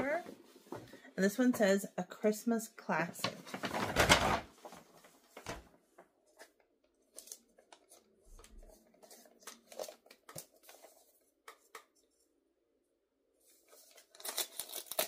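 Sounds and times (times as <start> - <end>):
wrapping paper rustling and crinkling: 3.2 - 11.3, 13.4 - 15.0.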